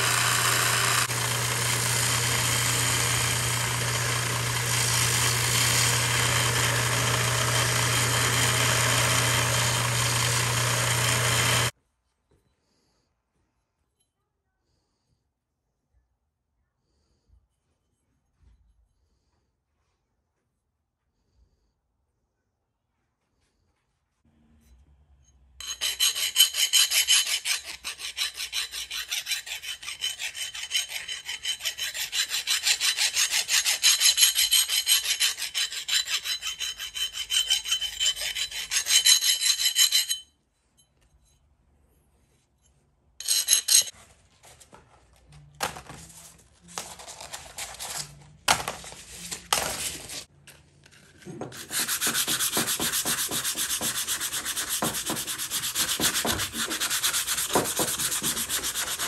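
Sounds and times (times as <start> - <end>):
rubbing strokes on metal: 25.6 - 40.2, 51.5 - 59.0.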